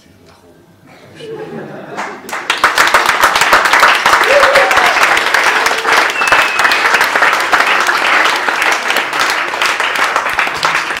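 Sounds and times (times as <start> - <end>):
audience applauding: 2.0 - 11.0
high whistle-like tone: 6.1 - 6.8.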